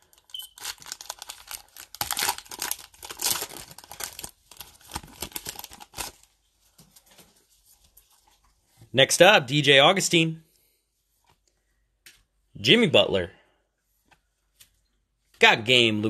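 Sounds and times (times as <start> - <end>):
foil pack tearing and crinkling: 0.1 - 6.3.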